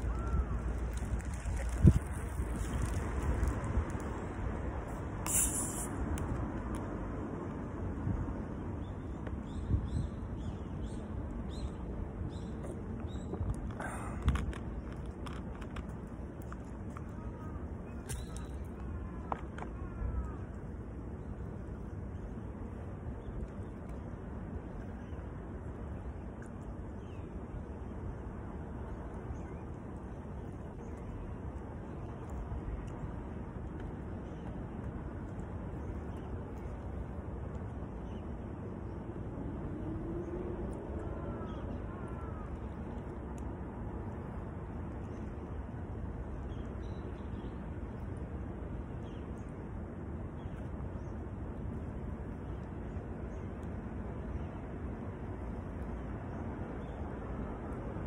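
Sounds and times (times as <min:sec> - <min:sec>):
distant background noise: 0:00.0 - 0:09.6, 0:10.4 - 0:58.0
low rumble of wind: 0:00.0 - 0:58.0.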